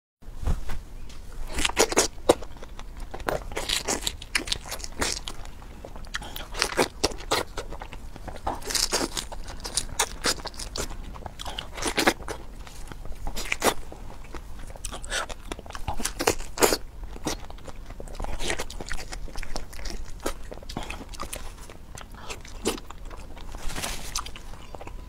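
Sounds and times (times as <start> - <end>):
crunching and wet chewing: 1.4 - 25.0.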